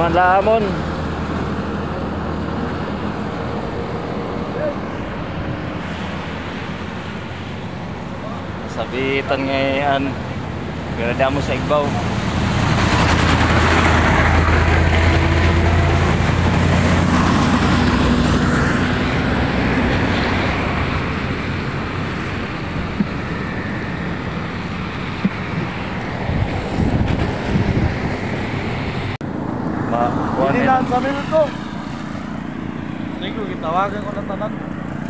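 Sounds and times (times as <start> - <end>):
vehicle engine running: 0.0 - 29.4
traffic hiss on wet road: 4.9 - 8.2.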